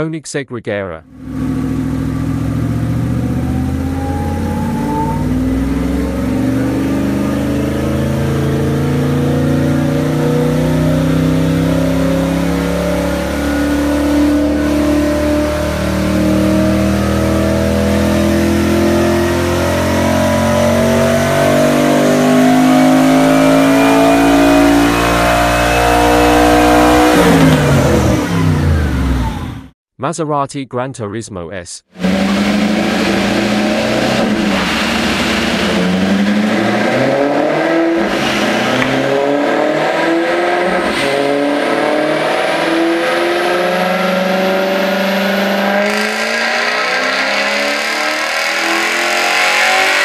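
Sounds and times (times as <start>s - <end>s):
car engine revving: 1.1s - 29.7s, 32.0s - 50.0s.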